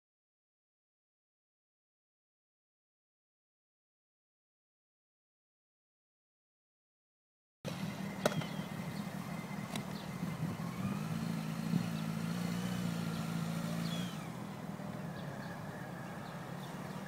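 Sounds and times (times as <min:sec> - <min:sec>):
motorcycle engine running slowly: 0:07.7 - 0:17.0
faint bird chirps: 0:07.8 - 0:10.8, 0:13.0 - 0:17.0.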